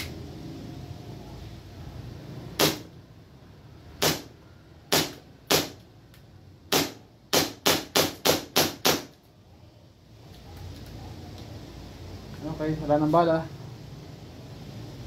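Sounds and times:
airsoft pistol shots: 0:02.6 - 0:02.9, 0:04.0 - 0:04.3, 0:04.9 - 0:05.8, 0:06.7 - 0:09.1.

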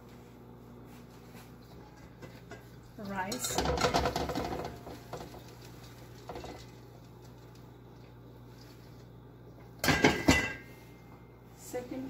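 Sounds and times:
low steady hum: 0:00.0 - 0:12.0
rice pattering into pot: 0:03.7 - 0:09.2.

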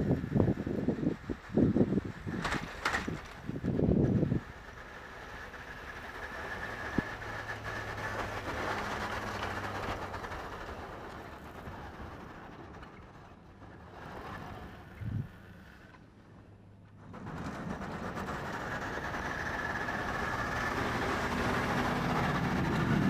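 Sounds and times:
pickup truck engine under load: 0:00.1 - 0:16.0, 0:16.9 - 0:23.0.

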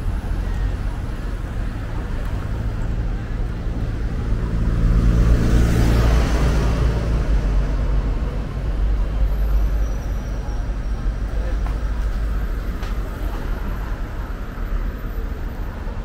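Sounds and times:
vehicle passing by: 0:04.0 - 0:08.8.

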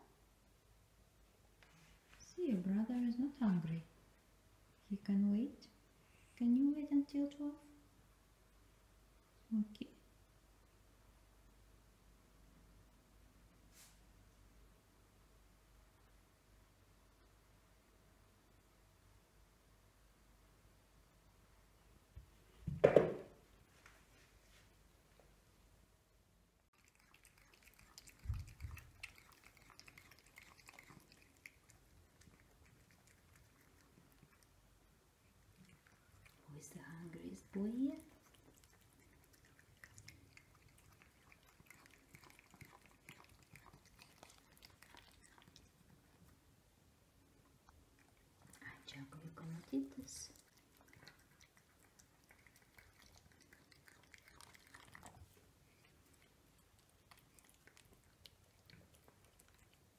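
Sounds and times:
cats crunching dry kibble: 0:26.9 - 0:34.5, 0:38.1 - 0:46.0, 0:48.0 - 0:59.9.

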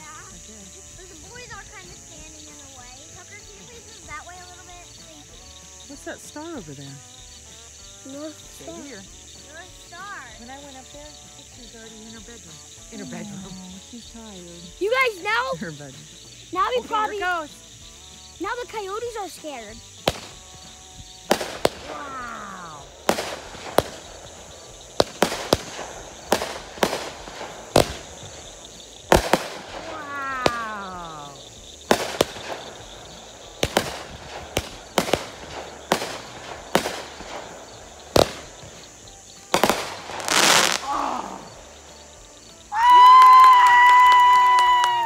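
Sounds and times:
fireworks falling whistles: 0:00.0 - 0:45.0
rushing hiss: 0:00.0 - 0:45.0
fireworks bangs and cracks: 0:18.4 - 0:45.0.

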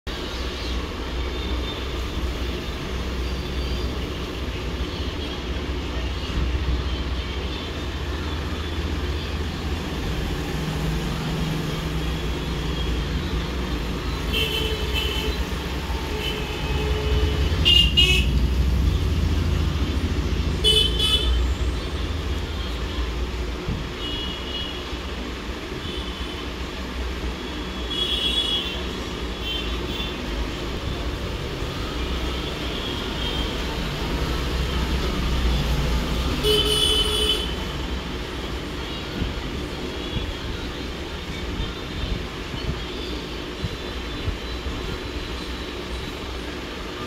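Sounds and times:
road traffic rumbling: 0:00.0 - 0:47.0
vehicle horns honking: 0:14.3 - 0:18.4, 0:20.6 - 0:21.6, 0:36.3 - 0:37.7.

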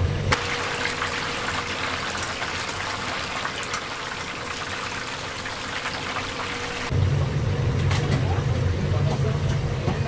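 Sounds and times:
oil sizzling and bubbling: 0:00.0 - 0:09.0.

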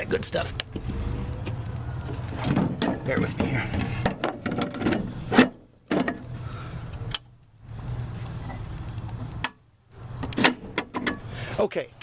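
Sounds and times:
low steady hum: 0:00.0 - 0:12.0
metal steps clunking and clicking: 0:00.6 - 0:06.3, 0:10.2 - 0:11.3.

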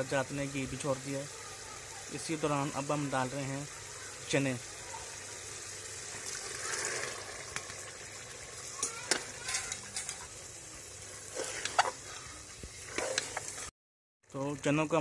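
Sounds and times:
bubbling masala in a pot: 0:00.0 - 0:15.0
metal spoon scraping a pot: 0:08.8 - 0:10.4, 0:11.0 - 0:13.7.

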